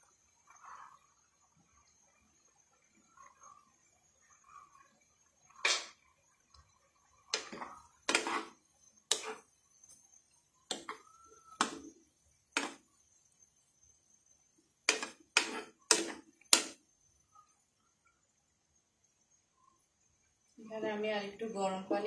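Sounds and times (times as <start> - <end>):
spoon scraping a frying pan: 7.4 - 9.4, 10.7 - 11.0, 11.6 - 11.9, 12.6 - 12.8, 14.9 - 16.7.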